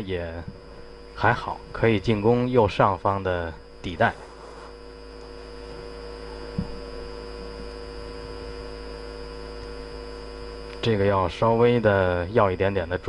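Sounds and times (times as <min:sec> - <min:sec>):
steady electrical hum: 0:00.0 - 0:13.0
soft low knock: 0:06.5 - 0:06.8.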